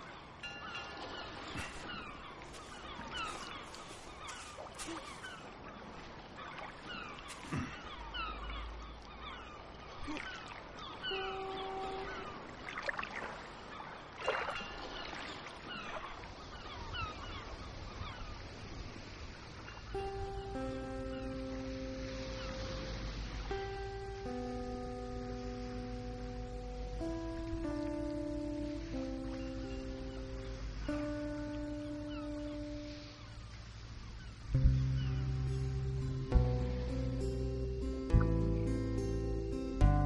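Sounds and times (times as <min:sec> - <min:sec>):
birds chattering: 0:00.0 - 0:12.6
plain held tones: 0:11.0 - 0:12.5.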